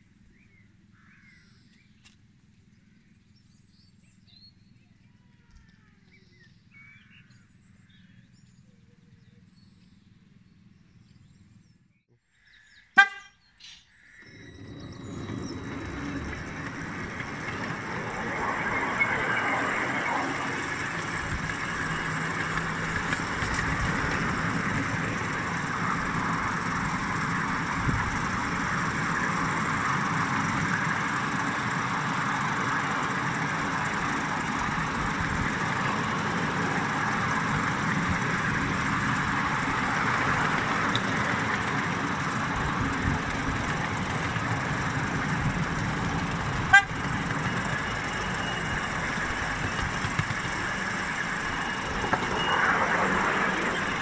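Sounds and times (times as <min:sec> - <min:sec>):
miniature train running on track: 0:14.2 - 0:54.0.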